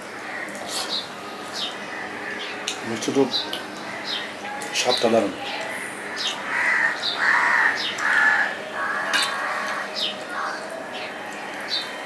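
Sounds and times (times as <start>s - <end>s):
crow cawing: 0.2s - 0.6s, 5.7s - 10.8s
small birds chirping: 0.3s - 12.0s.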